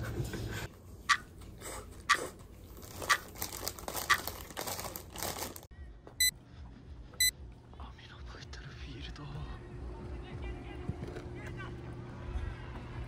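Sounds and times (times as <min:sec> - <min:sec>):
plastic bag crinkling: 0:02.7 - 0:05.7.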